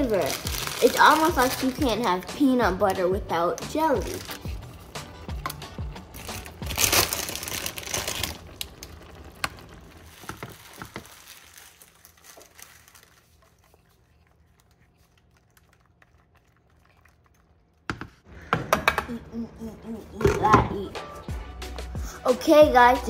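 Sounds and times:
cracker packet crinkling: 0:00.0 - 0:02.6, 0:04.0 - 0:17.9.

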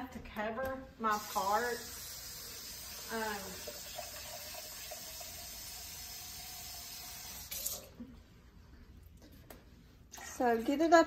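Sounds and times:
tap water running into container: 0:01.1 - 0:08.0.

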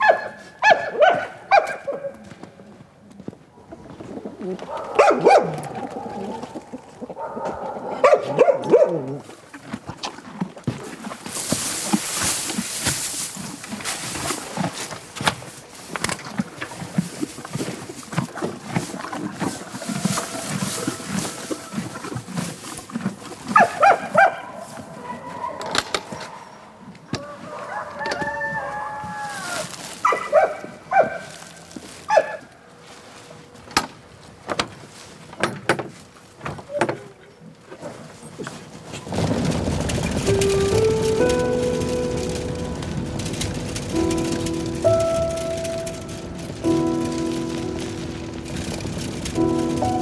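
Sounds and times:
chickens squawking and clucking: 0:19.3 - 0:22.0, 0:25.2 - 0:30.0
rooster crowing: 0:19.5 - 0:22.0, 0:27.2 - 0:29.8
music: 0:40.1 - 0:50.0.

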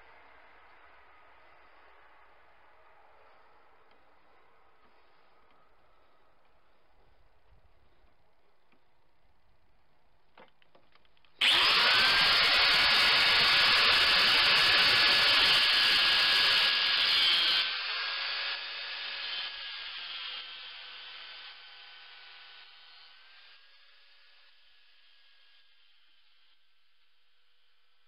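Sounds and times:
angle grinder cutting metal: 0:11.4 - 0:26.5
angle grinder whining: 0:11.4 - 0:26.5.

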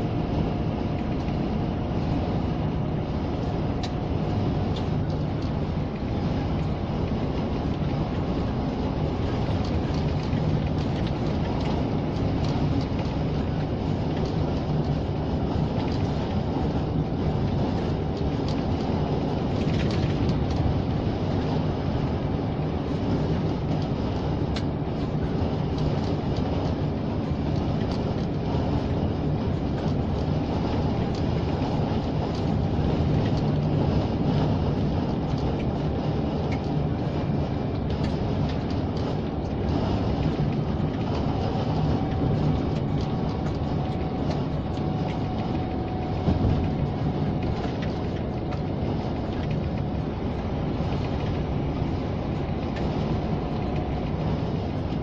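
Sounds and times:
truck diesel engine drone: 0:00.0 - 0:55.0
tyre road noise: 0:00.0 - 0:55.0.

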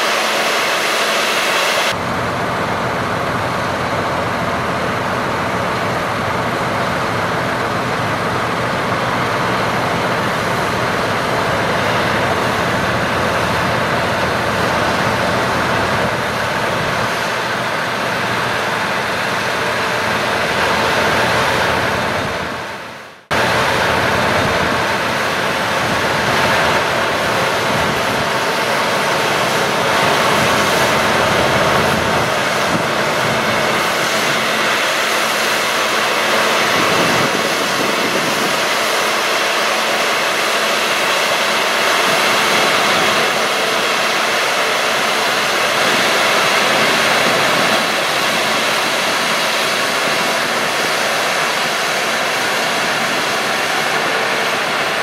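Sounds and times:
combine harvester running: 0:00.0 - 0:55.0.

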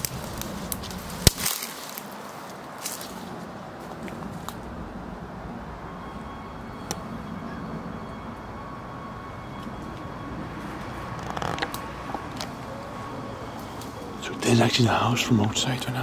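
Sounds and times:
twig snapping: 0:00.0 - 0:02.2
footsteps on leaves: 0:00.0 - 0:04.7
low outdoor rumble: 0:00.0 - 0:16.0.

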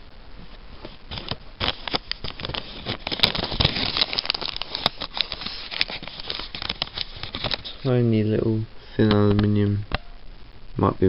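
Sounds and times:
plastic bag crinkling: 0:01.0 - 0:08.0.

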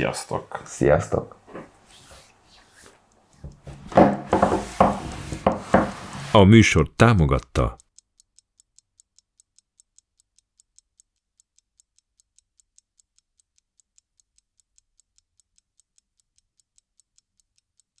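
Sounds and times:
clock ticking: 0:03.0 - 0:18.0.

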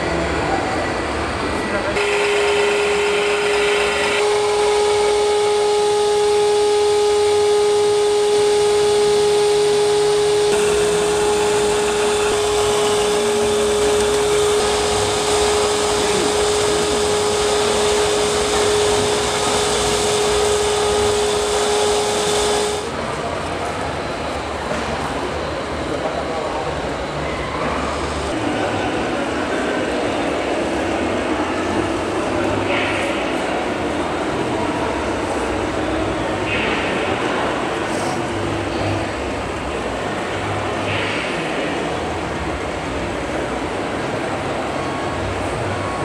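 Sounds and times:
small electric motor whine: 0:02.0 - 0:23.0.

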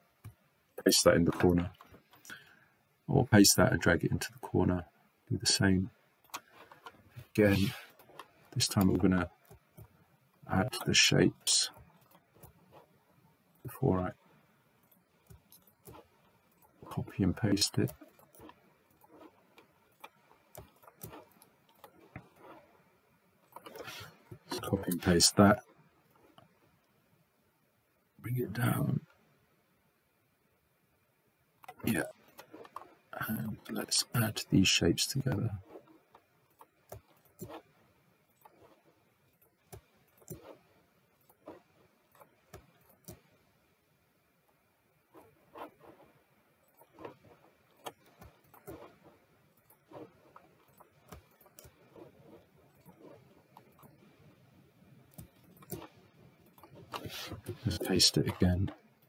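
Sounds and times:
mouse and keyboard clicks: 0:17.7 - 0:22.7, 0:39.6 - 0:40.6, 0:55.1 - 0:58.8.

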